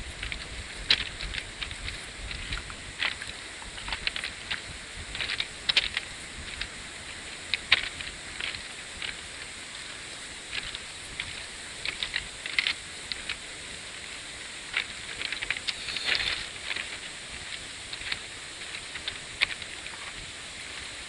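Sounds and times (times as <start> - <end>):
steady hiss: 0.0 - 21.0
footsteps crunching on stones: 14.8 - 20.2.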